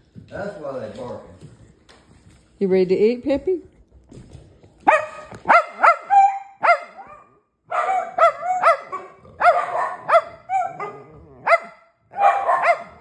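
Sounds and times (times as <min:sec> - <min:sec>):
dog barking: 0:04.8 - 0:13.0.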